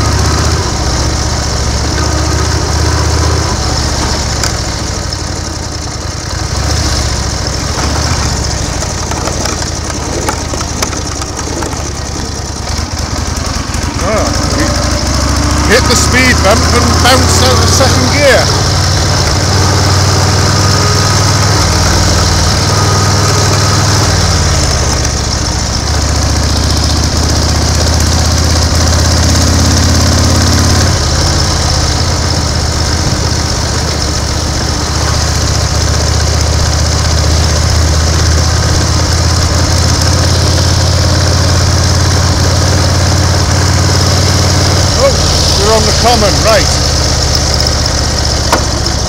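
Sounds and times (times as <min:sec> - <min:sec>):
motorcycle engine running: 0:00.0 - 0:49.0.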